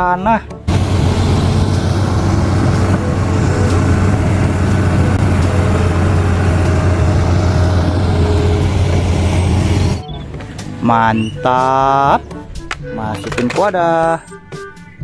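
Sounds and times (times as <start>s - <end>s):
excavator diesel engine humming: 0.7s - 10.6s.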